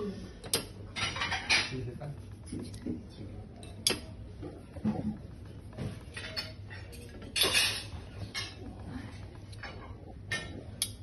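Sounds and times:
cutlery clinking against plates: 0:00.4 - 0:01.8, 0:03.6 - 0:04.1, 0:06.0 - 0:08.6, 0:09.5 - 0:11.0
cutlery clatter: 0:00.5 - 0:01.8, 0:06.1 - 0:08.6.

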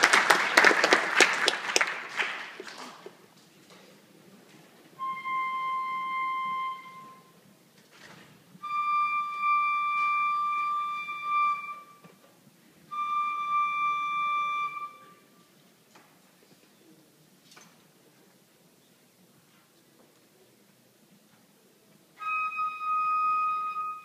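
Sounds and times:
wind instrument long held notes: 0:05.0 - 0:07.4, 0:08.6 - 0:12.2, 0:12.9 - 0:15.4, 0:22.2 - 0:24.0.

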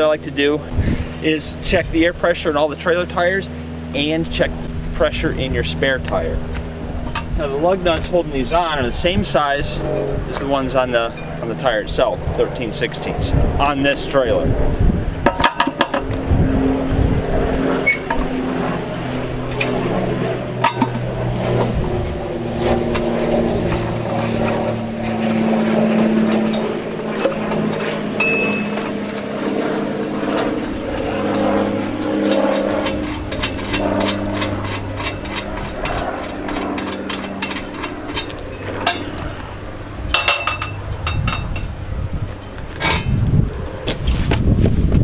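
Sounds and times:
engine-like drone: 0:00.0 - 0:45.0
wrench clicking on lug nuts: 0:32.3 - 0:39.0.

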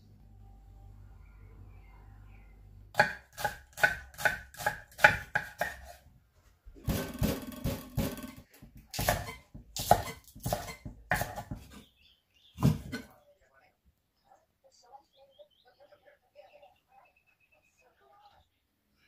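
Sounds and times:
knife chopping on cutting board: 0:03.0 - 0:06.0, 0:06.8 - 0:11.8, 0:12.6 - 0:13.1.

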